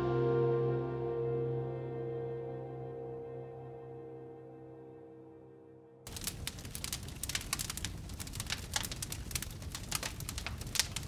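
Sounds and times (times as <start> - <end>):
ambient music: 0.0 - 6.1
campfire crackling and popping: 6.1 - 11.0.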